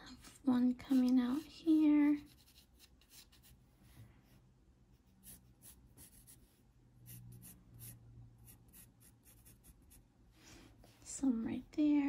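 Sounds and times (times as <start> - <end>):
pencil scratching on paper: 0.8 - 3.6, 5.2 - 10.0.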